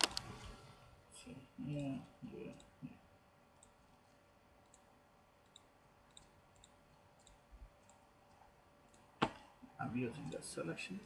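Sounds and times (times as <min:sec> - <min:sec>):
computer mouse clicks: 0:03.6 - 0:03.8, 0:04.6 - 0:09.1.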